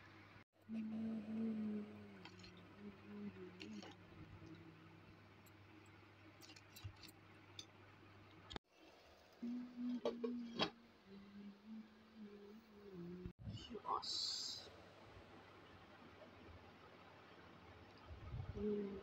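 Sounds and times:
steady low hum: 0.0 - 8.6, 9.4 - 19.0.

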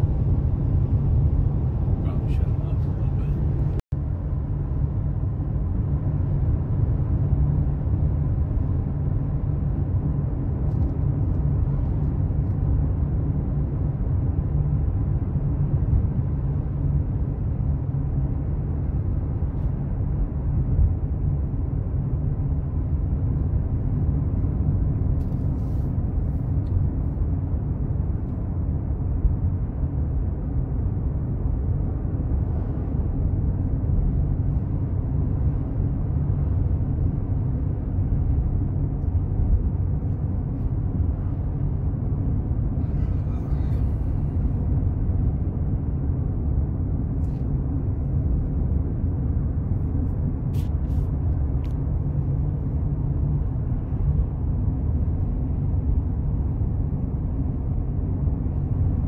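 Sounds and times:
car cabin road and engine rumble: 0.0 - 59.0.

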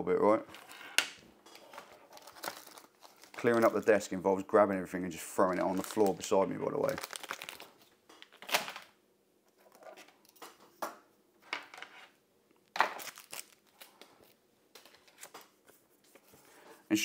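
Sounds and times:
paper and packaging rustling: 1.5 - 4.2, 5.4 - 8.9, 12.8 - 16.6.

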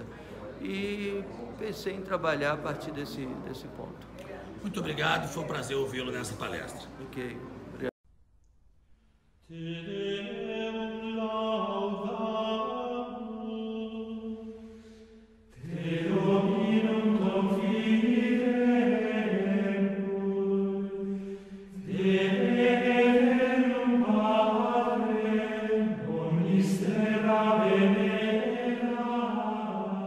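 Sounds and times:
chanted singing in long notes: 15.6 - 30.0.

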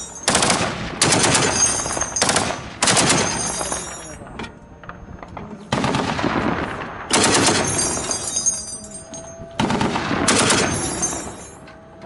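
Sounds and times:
heavy gunfire bursts: 0.2 - 3.9, 5.7 - 8.0, 9.6 - 11.3.

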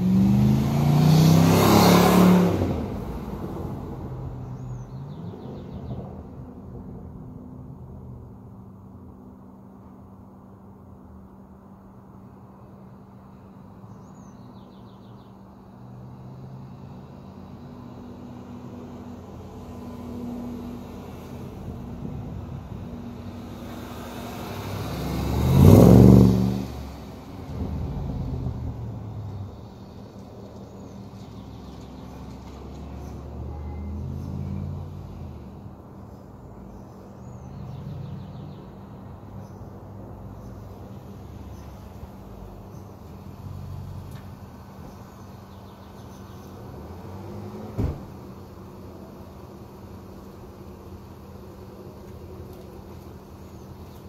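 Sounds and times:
car engine revving and idling: 0.0 - 4.7, 18.5 - 29.9.

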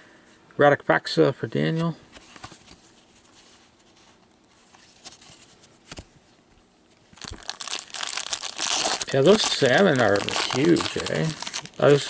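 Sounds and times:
trading cards flipped through: 4.6 - 6.1.

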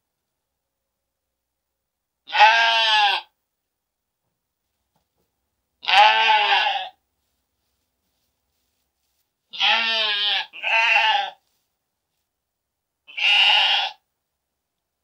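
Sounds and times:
sheep bleating: 2.3 - 3.3, 5.8 - 7.0, 9.5 - 11.4, 13.1 - 14.0.

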